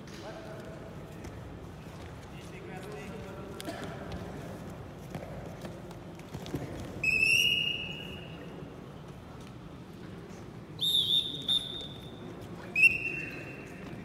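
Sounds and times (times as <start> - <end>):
referee whistle blasts: 10.8 - 12.1, 12.7 - 13.6.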